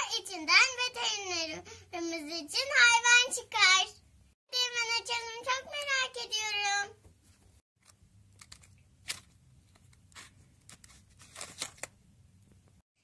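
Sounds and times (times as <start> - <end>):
foil lid crinkling and tearing: 10.7 - 11.9.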